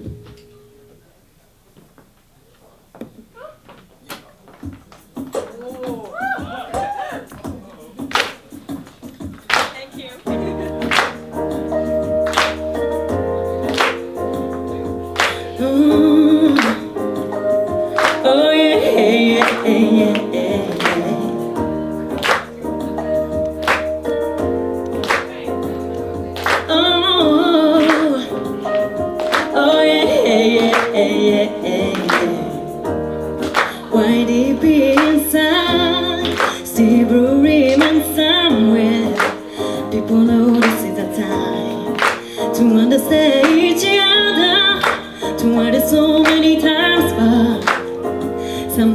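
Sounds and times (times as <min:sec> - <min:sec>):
instrumental accompaniment with beat: 0:04.0 - 0:48.9
woman singing into microphone: 0:15.1 - 0:48.9.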